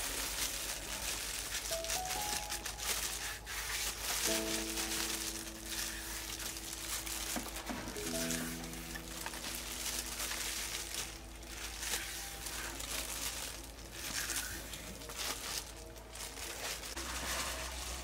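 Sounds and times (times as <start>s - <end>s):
plastic gloves crinkling: 0.0s - 18.0s
knife stripping vegetable skin: 2.4s - 4.7s.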